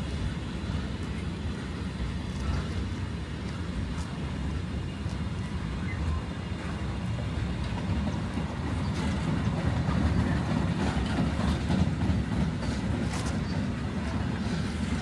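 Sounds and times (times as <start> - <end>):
freight train rumble: 0.0 - 15.0.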